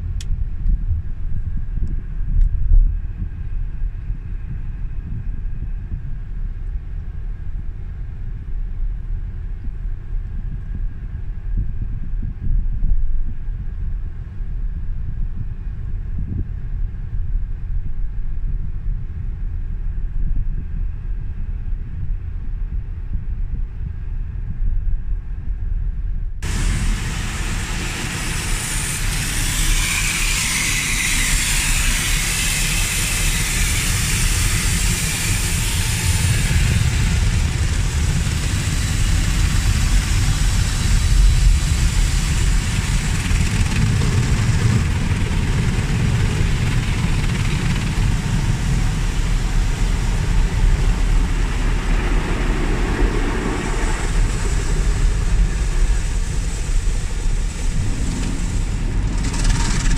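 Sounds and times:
water jets hissing on windshield: 0:26.4 - 0:36.6.

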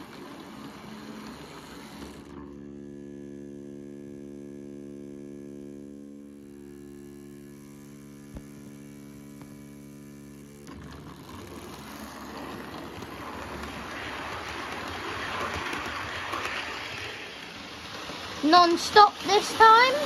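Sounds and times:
model train rumbling on track: 0:00.0 - 0:02.4, 0:10.6 - 0:20.0
steady electrical hum: 0:00.0 - 0:20.0.

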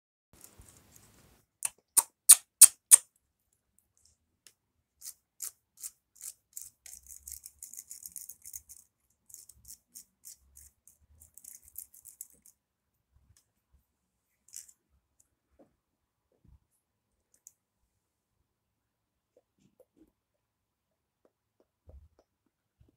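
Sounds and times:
plastic parts clicking and scratching: 0:05.0 - 0:12.6.

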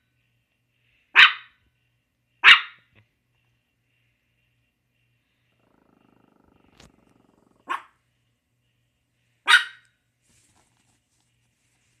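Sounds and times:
dog barking: 0:01.1 - 0:01.6, 0:02.4 - 0:02.9, 0:07.6 - 0:08.0, 0:09.4 - 0:09.9
dog growling: 0:05.5 - 0:07.8.

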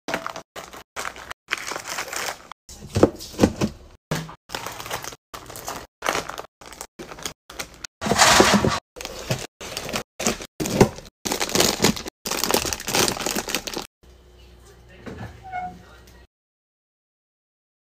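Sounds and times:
plastic wrappers crinkling: 0:00.1 - 0:02.6, 0:04.5 - 0:13.9.

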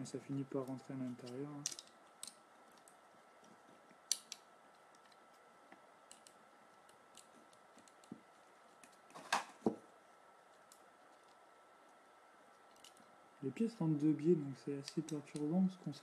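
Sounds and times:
plastic armour pieces clicking: 0:01.1 - 0:03.0, 0:04.0 - 0:05.2, 0:06.1 - 0:08.2.

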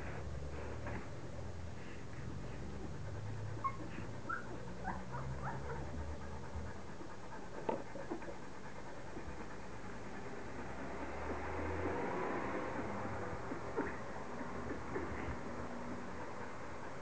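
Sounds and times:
puppy squeaking: 0:03.6 - 0:05.9.

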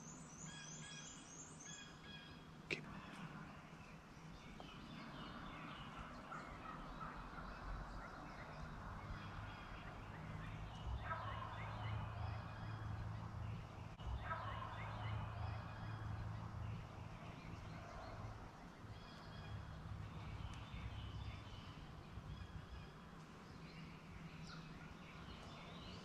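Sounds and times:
turkey gobbling: 0:05.9 - 0:08.3.

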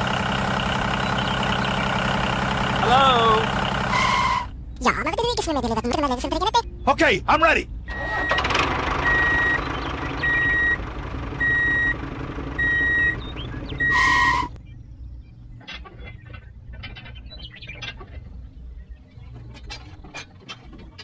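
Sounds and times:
engine-like drone: 0:00.0 - 0:04.8, 0:07.7 - 0:21.0
reversing alarm beeping: 0:07.9 - 0:10.8, 0:11.4 - 0:12.0, 0:12.6 - 0:14.5.

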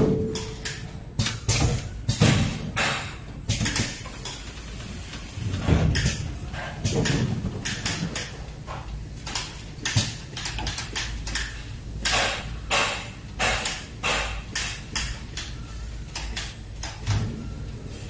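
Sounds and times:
steady low machine hum: 0:00.0 - 0:18.0
machine hisses and clacks: 0:12.1 - 0:14.8.

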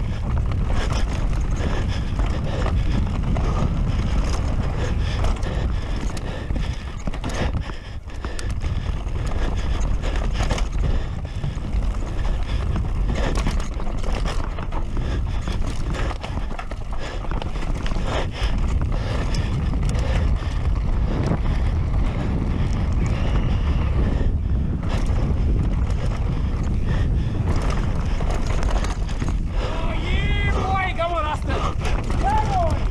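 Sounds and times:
bike clattering over bumps: 0:00.0 - 0:32.9
tyres running on dirt: 0:00.0 - 0:32.9
wind rush over microphone: 0:00.0 - 0:32.9.

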